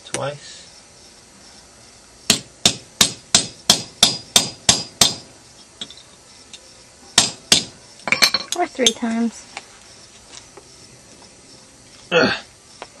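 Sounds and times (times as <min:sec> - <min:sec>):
hammer striking metal tool: 0:02.3 - 0:05.2.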